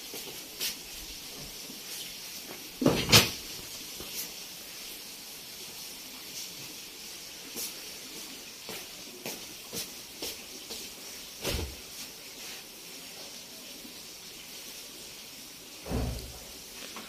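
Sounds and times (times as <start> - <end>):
steady hiss: 0.0 - 17.0
heavy thump: 15.9 - 16.4.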